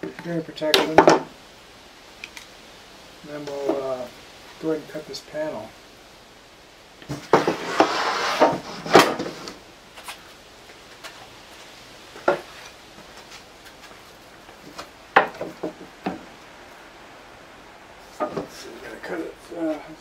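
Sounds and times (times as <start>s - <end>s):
wood scraping and clattering: 7.0s - 10.3s, 12.1s - 16.3s, 18.1s - 18.8s
sharp knocks on wood: 15.2s - 16.2s.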